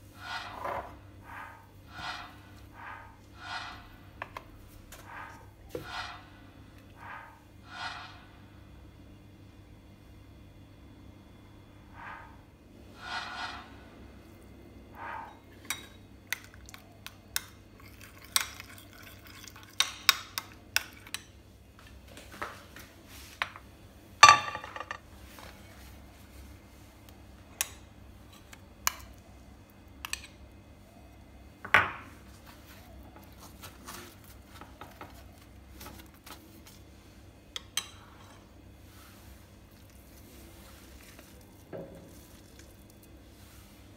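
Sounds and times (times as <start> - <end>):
dishes clattering: 24.2 - 25.0.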